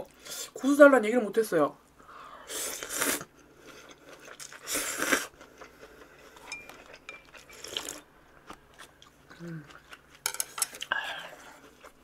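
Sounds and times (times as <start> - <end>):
utensils clinking on dishes: 6.4 - 7.6, 10.2 - 10.8.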